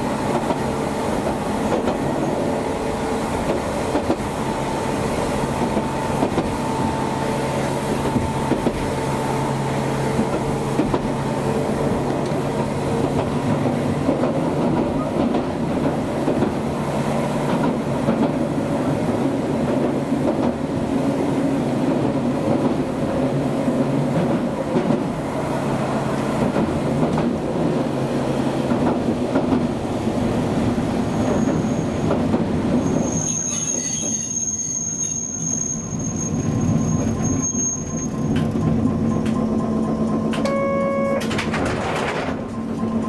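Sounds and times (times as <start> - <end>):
streetcar wheel and motor rumble: 0.0 - 43.0
high wheel squeal: 31.1 - 32.1, 32.7 - 41.3
brief chime: 40.4 - 41.3.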